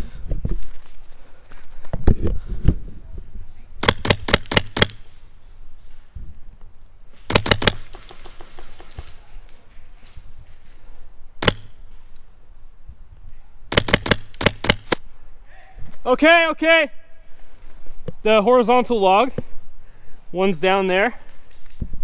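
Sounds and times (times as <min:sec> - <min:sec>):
airsoft rifle shots: 0:03.8 - 0:05.1, 0:07.2 - 0:09.3, 0:11.4 - 0:11.8, 0:13.7 - 0:15.0.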